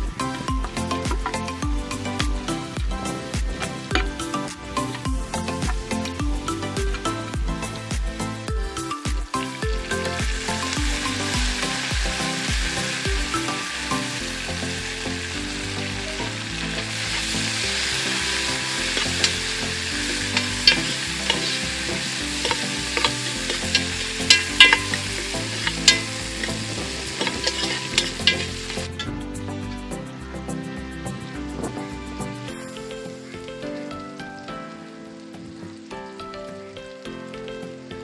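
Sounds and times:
spices sizzling in a pot: 0.0 - 38.0
metal spoon scraping a pot: 18.5 - 29.0.

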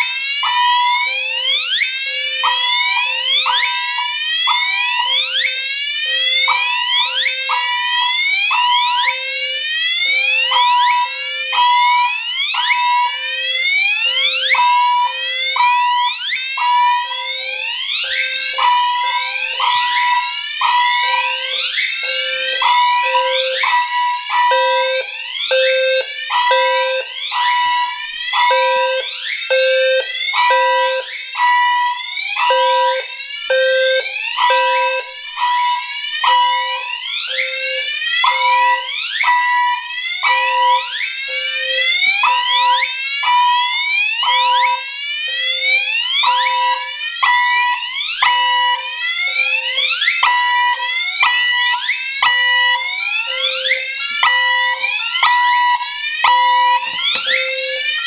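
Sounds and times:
fire alarm horn whooping: 0.0 - 58.0
low tone alarm beeps: 24.5 - 27.0, 28.4 - 31.0, 32.5 - 35.1, 53.3 - 57.8.

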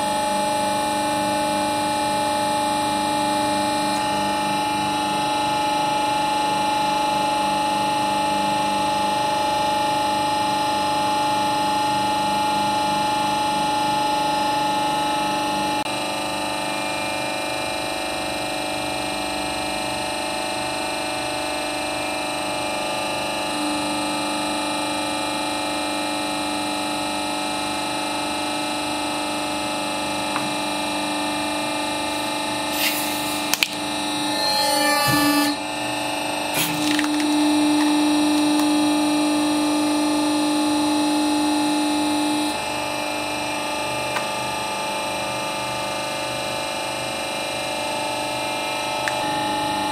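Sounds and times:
hydraulic pump humming: 32.0 - 38.8
brief rising squeal: 32.2 - 35.8, 36.6 - 37.1.

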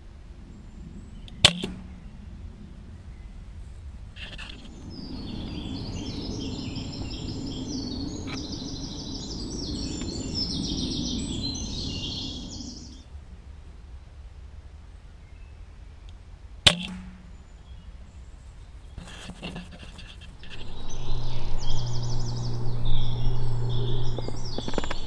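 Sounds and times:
air rifle shot: 1.4 - 2.0, 16.7 - 17.4
songbird singing: 4.2 - 13.1, 20.4 - 25.0.

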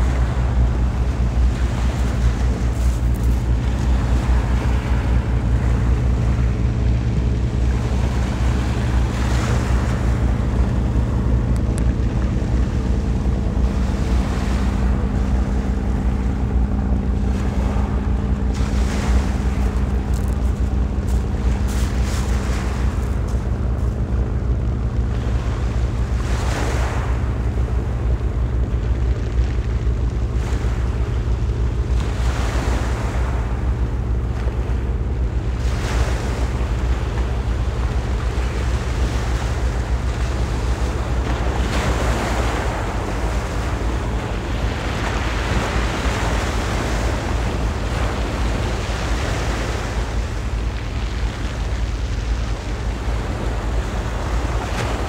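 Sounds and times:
steady low drone: 0.0 - 55.0
waves washing onto pebbles: 0.0 - 55.0.

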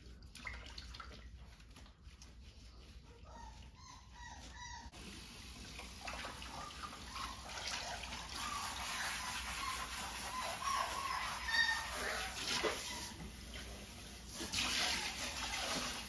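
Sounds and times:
puppy whimpering: 3.2 - 5.0, 7.0 - 13.2
water spraying from faucet: 5.0 - 16.0.

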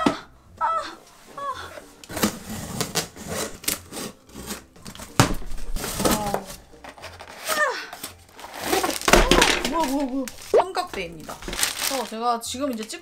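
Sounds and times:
cardboard scraping and rubbing: 2.1 - 12.0
cardboard box thump: 5.0 - 6.5.

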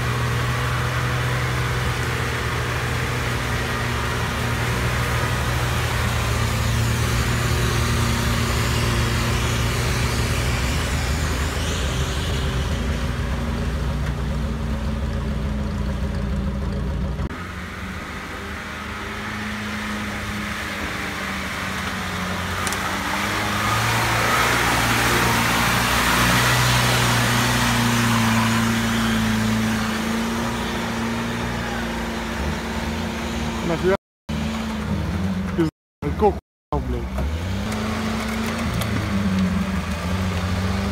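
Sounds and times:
off-road vehicle engine revving: 0.0 - 40.9.

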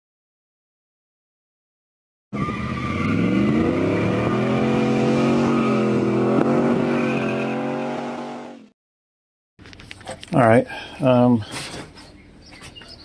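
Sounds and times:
pickup truck accelerating past: 2.4 - 8.6.

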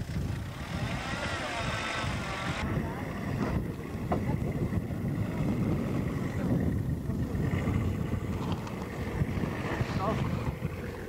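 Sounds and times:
engine running at low revs: 0.0 - 11.0
wind on microphone: 0.0 - 11.0.

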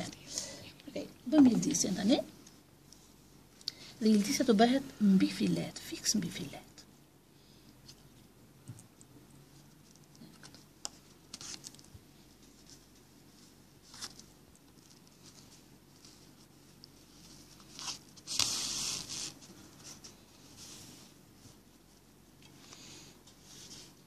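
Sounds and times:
needle scratching through cloth: 14.8 - 21.0.

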